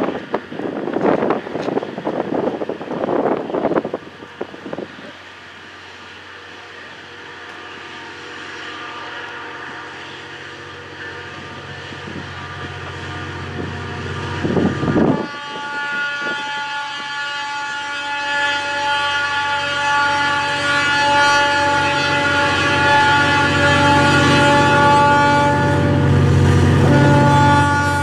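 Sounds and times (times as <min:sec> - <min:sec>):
diesel locomotive running: 0:00.0 - 0:28.0
locomotive air horn blast: 0:06.9 - 0:28.0.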